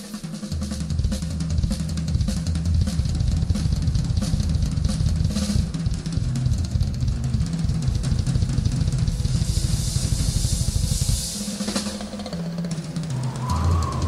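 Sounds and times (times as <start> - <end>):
drum kit played hard: 0.0 - 14.0
cymbal crashes: 7.9 - 14.0.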